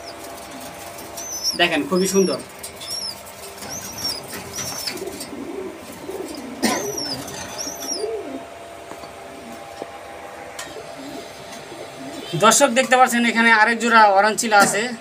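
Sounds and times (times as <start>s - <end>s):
bird chirping: 0.0s - 0.2s, 1.2s - 5.2s, 6.1s - 8.3s
pigeons cooing: 0.0s - 12.6s.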